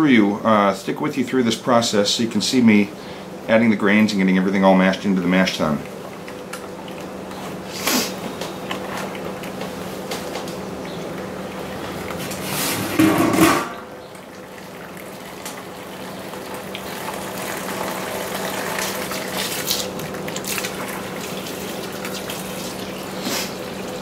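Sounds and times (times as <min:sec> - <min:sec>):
water splashing into a cooler: 0:14.6 - 0:24.0.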